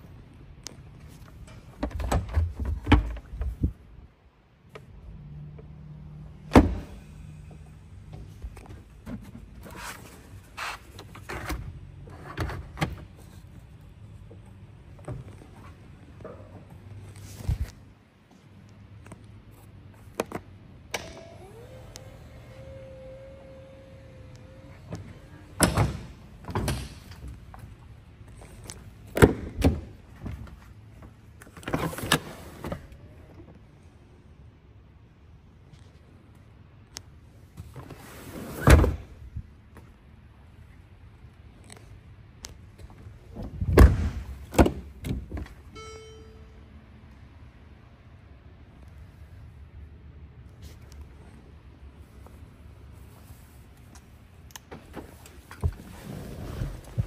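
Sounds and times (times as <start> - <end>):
faint steady hum: 45.0 - 57.0.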